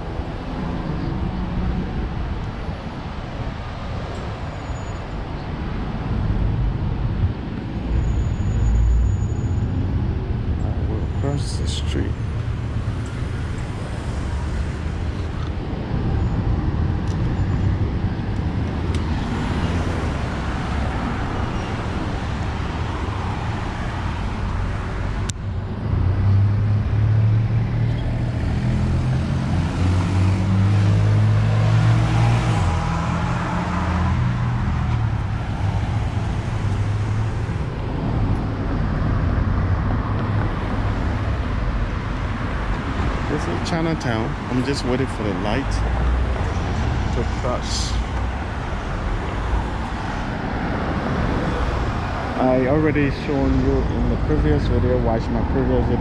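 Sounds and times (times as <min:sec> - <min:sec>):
street traffic hum: 0:00.0 - 0:56.0.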